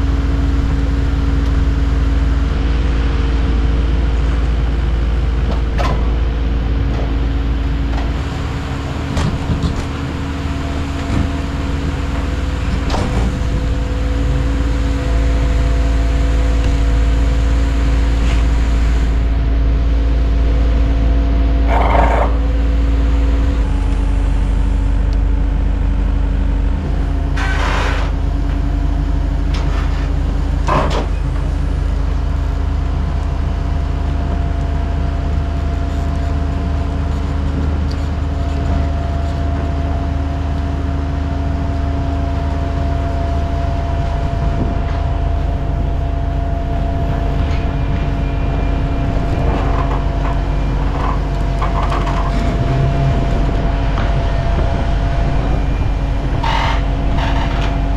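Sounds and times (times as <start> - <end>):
diesel engines running under load: 0.0 - 57.9.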